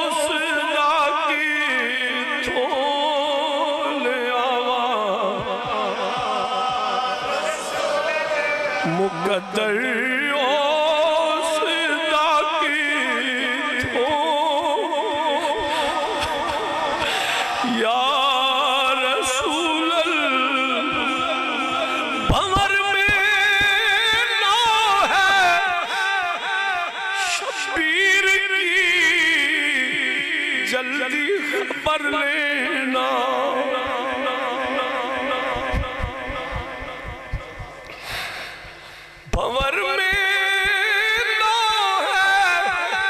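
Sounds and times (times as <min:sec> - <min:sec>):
low thuds keeping a beat: 0:05.3 - 0:07.8, 0:35.3 - 0:39.8
man singing a held note: 0:19.2 - 0:43.0.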